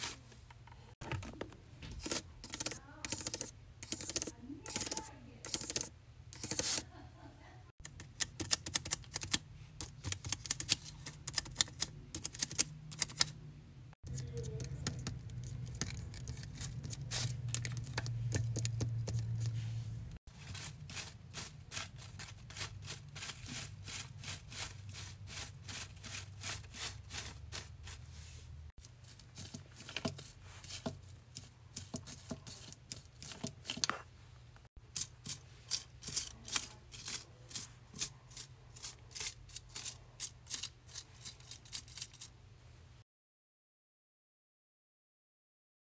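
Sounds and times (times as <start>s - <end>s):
fingers tapping and flicking paper: 2.0s - 6.8s, 7.8s - 13.3s, 14.1s - 19.5s.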